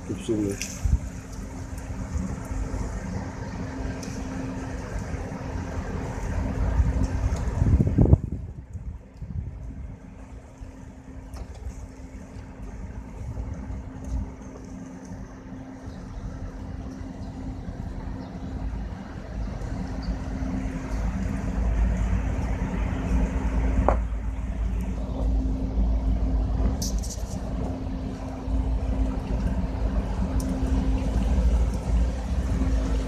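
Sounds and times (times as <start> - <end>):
truck engine idling: 9.7 - 33.0.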